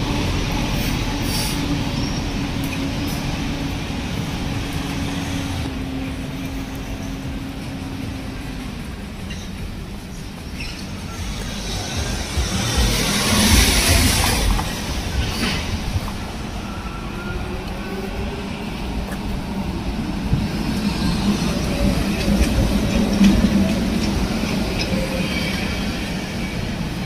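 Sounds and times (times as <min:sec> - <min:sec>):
city traffic hum: 0:00.0 - 0:27.0.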